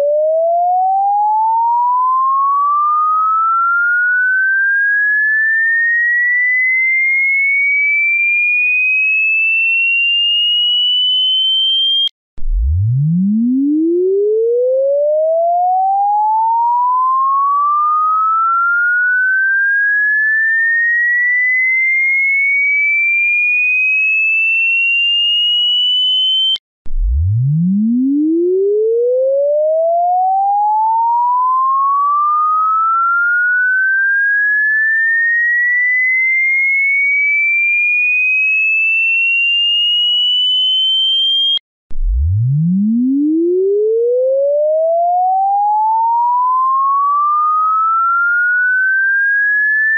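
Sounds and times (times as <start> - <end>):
electronic tone sweeping upward: 41.0 - 49.9.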